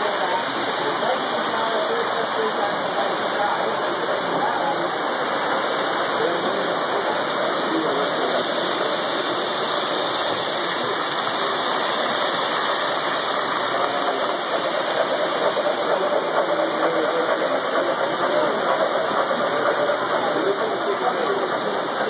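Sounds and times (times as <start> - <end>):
model trains rolling on track: 0.0 - 22.0.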